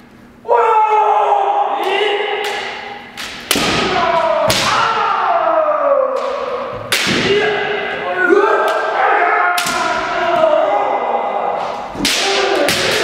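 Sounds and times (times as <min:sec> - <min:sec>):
people shouting drawn-out cries: 0:00.4 - 0:03.0, 0:03.7 - 0:13.0
bamboo sword strikes cracking: 0:02.4 - 0:04.8.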